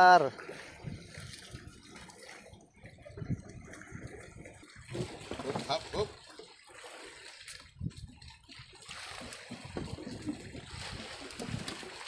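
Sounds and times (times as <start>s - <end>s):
water lapping against boat hull: 0.0s - 12.0s.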